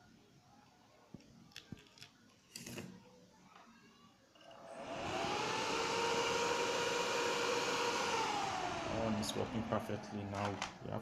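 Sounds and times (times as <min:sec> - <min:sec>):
cooling fan whirring: 0:04.5 - 0:11.0.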